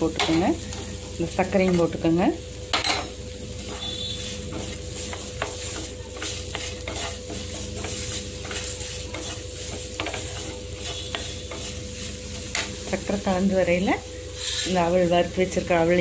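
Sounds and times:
light sizzle from pan: 0:00.0 - 0:16.0
wooden spatula scraping frying pan: 0:03.5 - 0:13.3.

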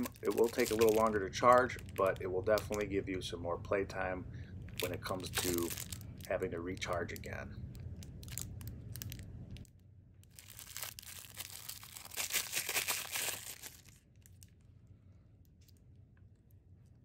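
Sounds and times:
plastic bag crinkling and tearing: 0:00.0 - 0:02.9, 0:04.7 - 0:14.6.

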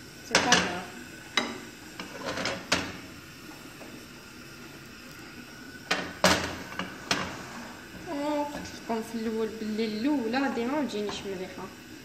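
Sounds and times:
frying pan knocking on metal grate: 0:05.9 - 0:07.2.

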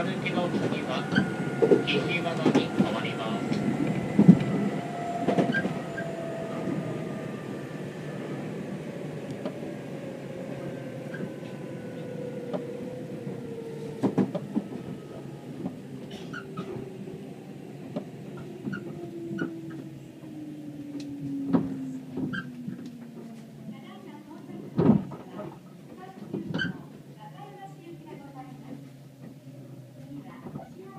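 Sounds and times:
train rumble: 0:00.0 - 0:30.9
clicks and squeaks from train car: 0:00.2 - 0:06.8, 0:11.0 - 0:17.2, 0:17.8 - 0:23.6, 0:24.5 - 0:27.2, 0:28.1 - 0:30.9.

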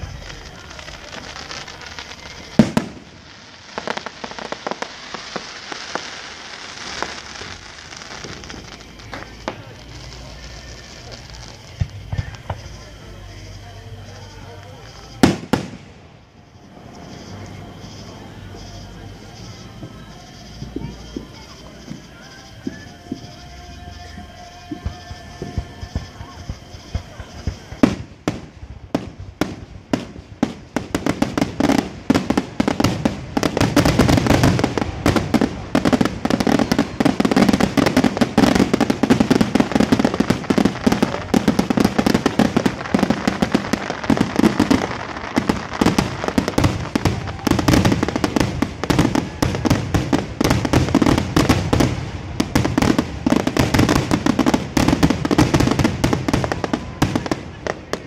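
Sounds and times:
fireworks shells bursting: 0:00.0 - 0:58.0.

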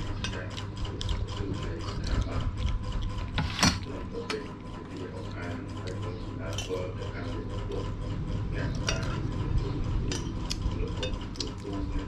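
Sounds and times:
steady low hum: 0:00.0 - 0:12.0
spoons scraping on plates: 0:03.3 - 0:07.9, 0:08.6 - 0:11.9.

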